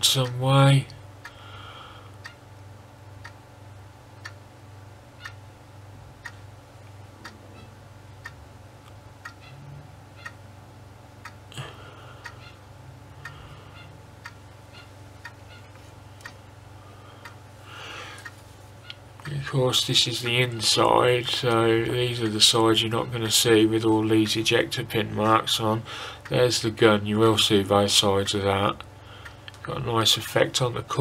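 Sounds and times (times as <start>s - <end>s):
clock ticking: 0.0s - 0.4s, 3.2s - 3.4s, 4.2s - 4.4s, 5.2s - 5.4s, 6.2s - 6.5s, 7.2s - 8.5s, 9.2s - 9.6s, 10.2s - 10.4s, 11.2s - 11.6s, 13.2s - 15.6s, 18.2s - 31.0s
low steady hum: 0.0s - 31.0s.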